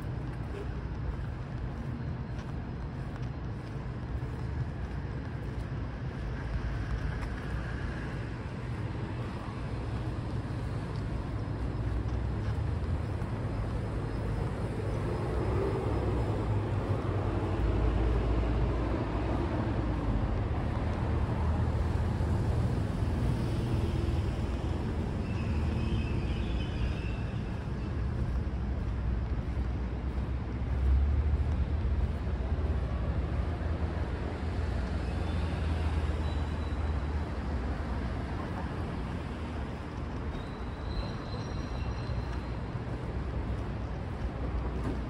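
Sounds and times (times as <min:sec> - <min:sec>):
passing cars rumble: 0:00.0 - 0:41.3.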